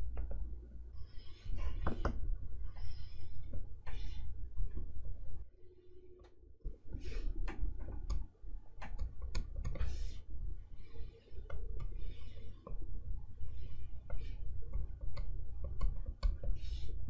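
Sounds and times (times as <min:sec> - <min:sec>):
stylus tapping on screen: 0:14.0 - 0:16.9.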